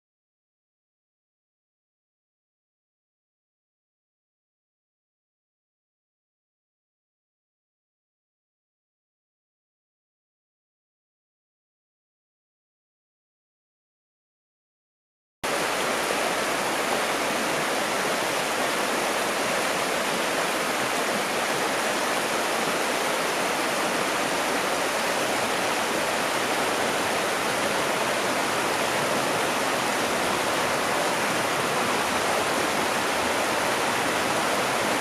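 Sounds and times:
river rushing over rocks: 15.5 - 35.0.

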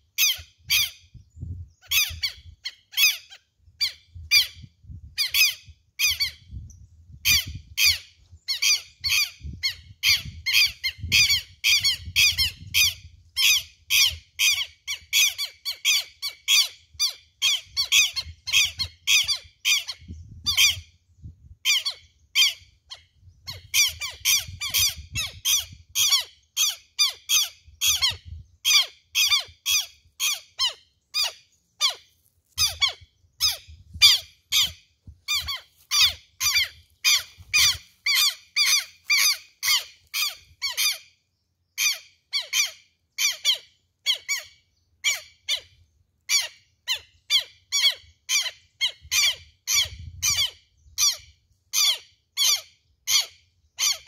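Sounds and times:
lapwing alarm calls: 0.1 - 54.0.

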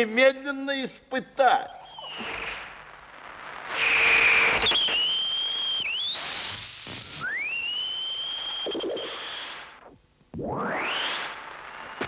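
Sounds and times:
high electronic whistle gliding: 1.7 - 2.8, 3.7 - 12.0
burst of hiss: 3.7 - 7.5.

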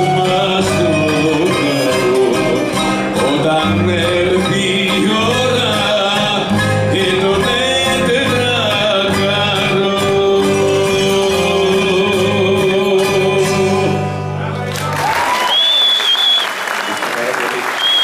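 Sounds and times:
accordion: 0.0 - 9.2
person singing: 0.0 - 14.2
bouzouki and plucked strings: 0.0 - 14.7.

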